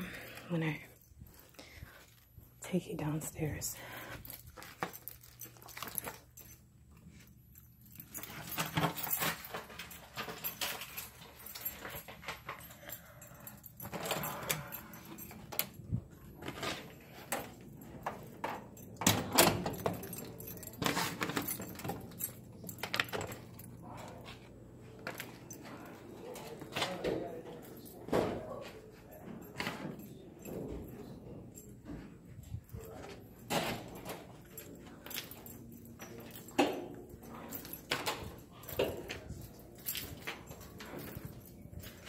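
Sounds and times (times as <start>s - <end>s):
jangling and rustling belongings: 0.0s - 42.0s.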